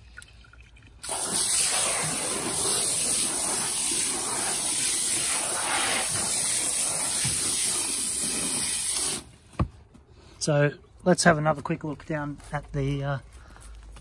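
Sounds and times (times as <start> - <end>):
hose nozzle spraying water: 1.0 - 9.3.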